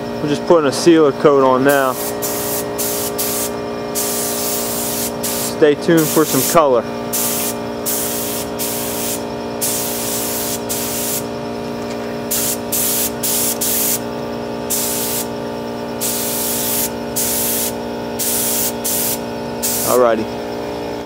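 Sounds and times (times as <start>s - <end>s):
air spray gun hissing: 1.7s - 11.3s, 12.3s - 14.1s, 14.7s - 15.4s, 16.0s - 20.1s.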